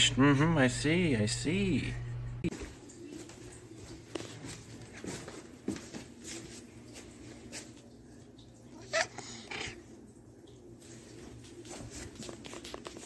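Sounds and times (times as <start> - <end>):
faint ticks and rustles: 2.6 - 13.0
cat meowing: 8.8 - 9.8.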